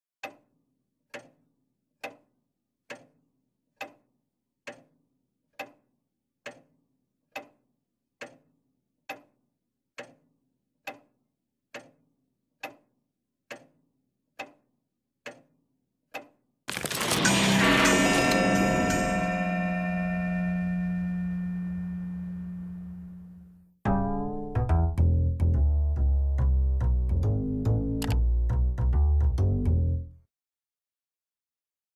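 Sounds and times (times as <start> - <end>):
clock ticking: 0.2 - 0.4, 1.1 - 1.4, 2.9 - 3.2, 4.7 - 4.9, 5.6 - 5.8, 6.4 - 6.7, 10.0 - 10.2, 10.8 - 11.1, 11.7 - 12.0, 12.6 - 12.9, 13.5 - 13.8, 14.4 - 14.6, 15.2 - 15.5.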